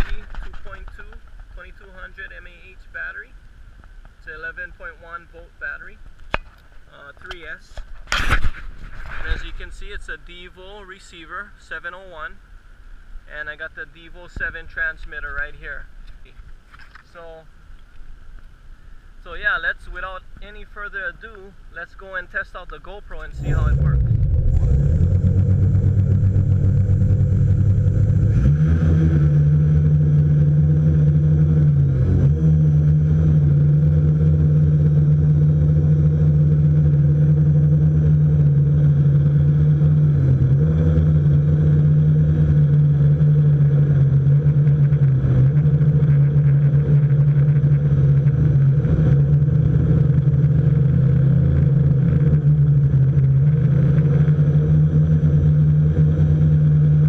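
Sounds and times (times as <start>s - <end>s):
drone motors and propellers humming: 23.1s - 57.0s.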